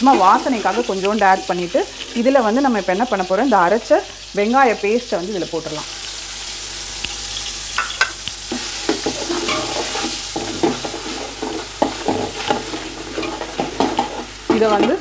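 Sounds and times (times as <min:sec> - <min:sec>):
paste sizzling in hot oil: 0:00.0 - 0:15.0
steel spoon scraping a pot: 0:07.0 - 0:15.0.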